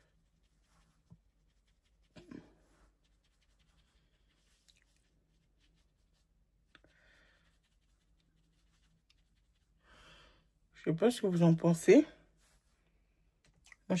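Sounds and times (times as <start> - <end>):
faint scratching: 0.0 - 10.6.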